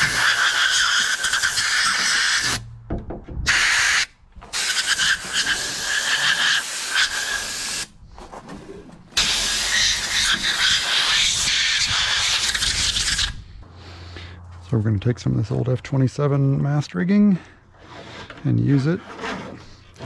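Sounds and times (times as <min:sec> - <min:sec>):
air blow gun hissing: 0:00.0 - 0:02.6, 0:03.5 - 0:07.9, 0:09.2 - 0:13.4.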